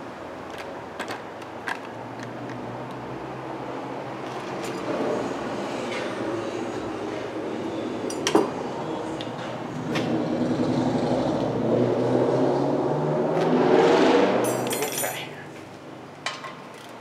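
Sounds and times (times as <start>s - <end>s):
sharp metallic clinks: 14.4s - 15.4s.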